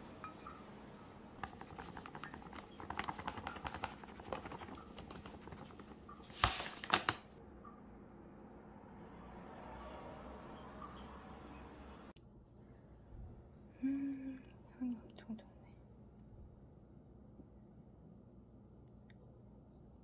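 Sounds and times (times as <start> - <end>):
paper bag rustling: 1.4 - 7.3.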